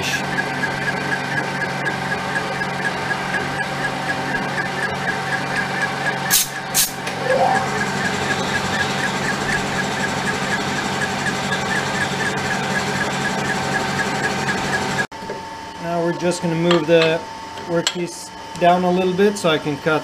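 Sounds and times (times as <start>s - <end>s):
lathe machine hum: 0.2s - 15.1s.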